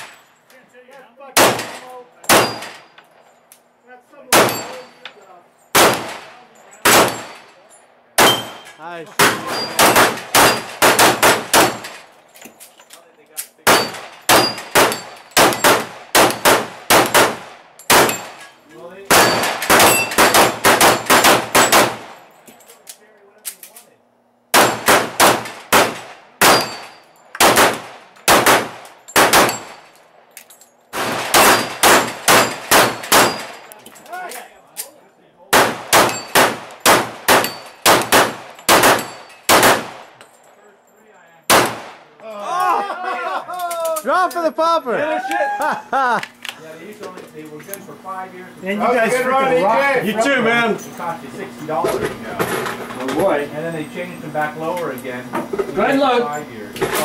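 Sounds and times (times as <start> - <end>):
handgun shots: 1.4 - 2.8, 5.8 - 6.2, 6.8 - 7.3, 8.2 - 8.6, 9.2 - 12.0, 13.7 - 18.3, 19.1 - 22.1, 24.5 - 29.8, 31.0 - 33.6, 35.5 - 40.0, 41.5 - 42.0
steel plates clanging: 17.8 - 22.7, 36.0 - 36.4, 37.3 - 37.9.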